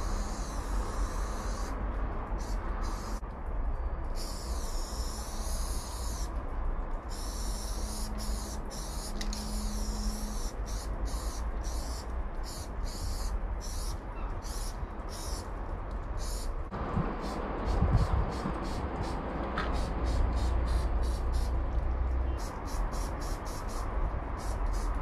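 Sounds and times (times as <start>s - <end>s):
spray-paint can hissing: 4.2s - 6.3s, 7.1s - 13.9s, 17.2s - 21.6s, 22.4s - 25.0s.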